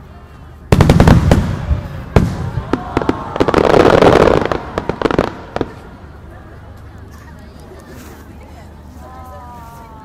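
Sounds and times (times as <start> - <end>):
firework bangs: 0.7 - 5.9
firework crackle: 0.7 - 6.1.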